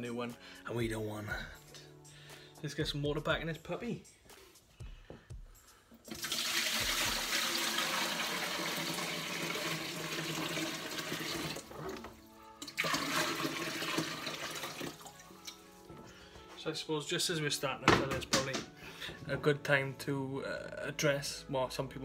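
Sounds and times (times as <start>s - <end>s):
water pouring into glass tank: 6.1s - 15.6s.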